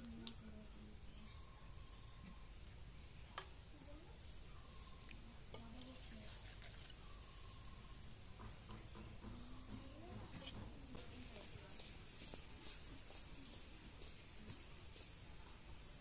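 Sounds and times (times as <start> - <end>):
faint knocks: 8.3 - 11.2.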